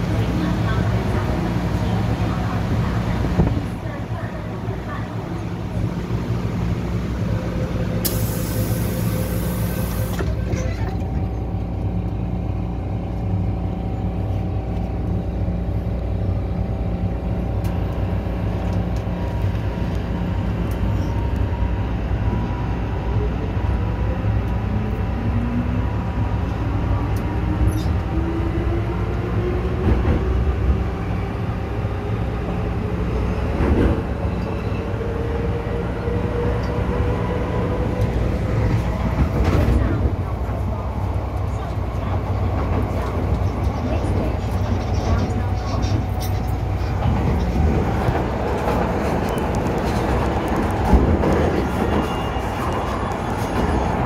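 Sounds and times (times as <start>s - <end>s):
train interior rumble: 0.0s - 54.0s
air hiss: 8.0s - 10.2s.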